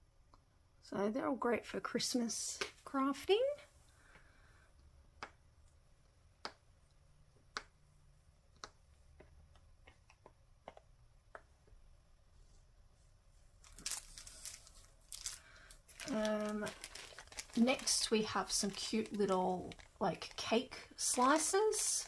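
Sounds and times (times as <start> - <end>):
plastic packet crinkling: 13.6 - 22.0.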